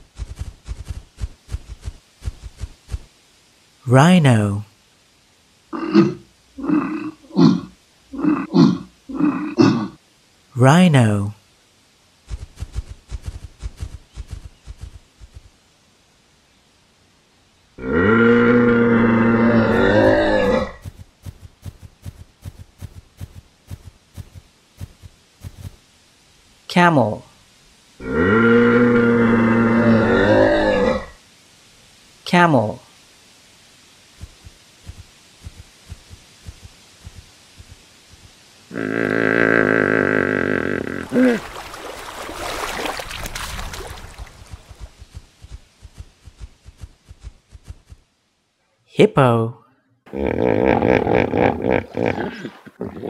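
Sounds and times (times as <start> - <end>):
long animal call: 5.7 - 10.0, 17.8 - 20.8, 28.0 - 31.2, 38.7 - 43.0, 50.1 - 53.0
water splashing: 40.6 - 46.4.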